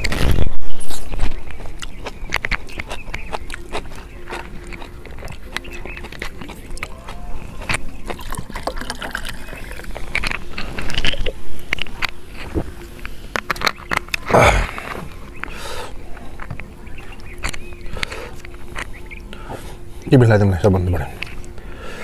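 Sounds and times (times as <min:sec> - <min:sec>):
chewing and mouth smacks: 0:00.0 - 0:20.1, 0:20.9 - 0:21.7
utensil clicks: 0:01.2 - 0:15.7.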